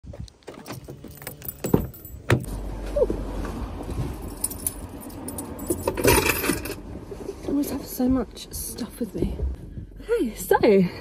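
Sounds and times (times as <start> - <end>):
car door shutting: 0.4 - 4.2
keys jangling: 0.5 - 2.5, 4.1 - 6.8.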